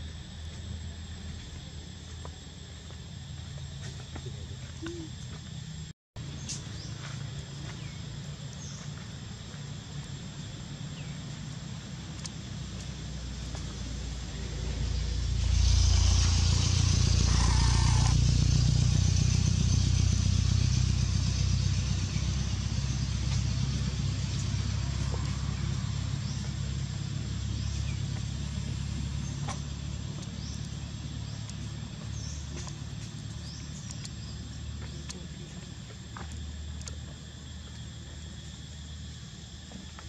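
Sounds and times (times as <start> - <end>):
vehicle engine rumbling: 0.0 - 40.0.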